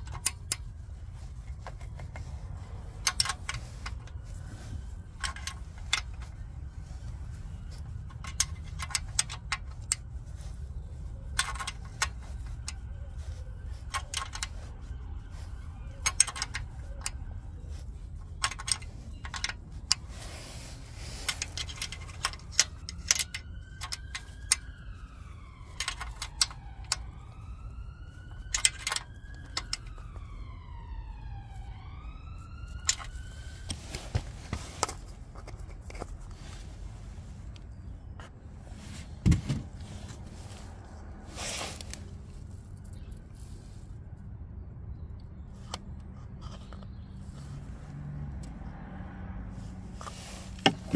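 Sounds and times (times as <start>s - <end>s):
wrench clicking on metal bolts: 0.0s - 2.3s, 3.0s - 4.2s, 5.1s - 6.4s, 7.9s - 10.0s, 11.3s - 12.8s, 13.8s - 14.6s, 15.9s - 17.2s, 18.2s - 20.1s, 21.2s - 24.7s, 25.7s - 27.1s, 28.4s - 29.9s
distant siren wailing: 0.0s - 35.6s, 36.3s - 44.9s, 45.8s - 50.9s.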